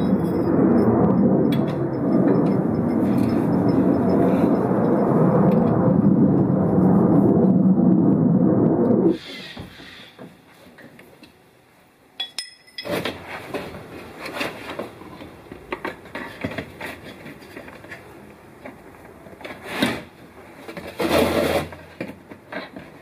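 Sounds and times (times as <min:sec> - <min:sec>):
metal tool clinking on metal: 0:12.2 - 0:13.0.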